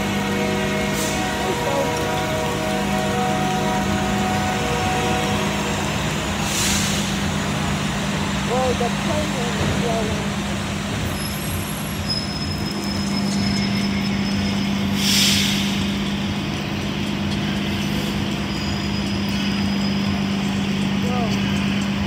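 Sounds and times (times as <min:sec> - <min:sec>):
bus idling hum: 0:00.0 - 0:22.0
air brakes hissing: 0:00.7 - 0:01.5, 0:05.4 - 0:07.7, 0:11.1 - 0:16.6.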